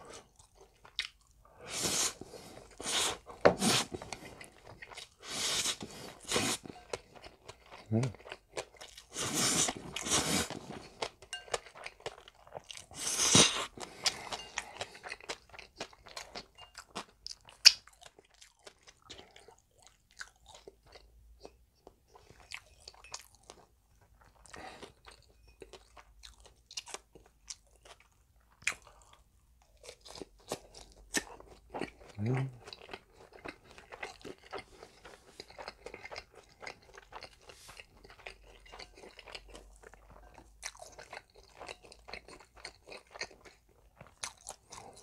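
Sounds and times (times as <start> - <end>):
noodle slurping: 1.6 - 4.4, 5.2 - 6.6, 9.1 - 10.6
crisp chewing crunches: 22.2 - 45.0.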